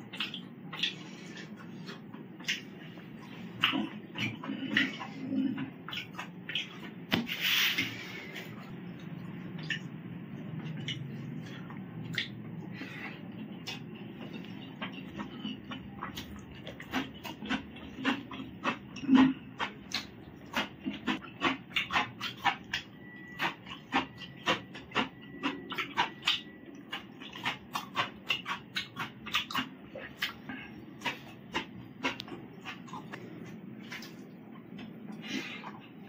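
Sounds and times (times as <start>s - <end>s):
person chewing and lip smacking: 0.0s - 36.0s.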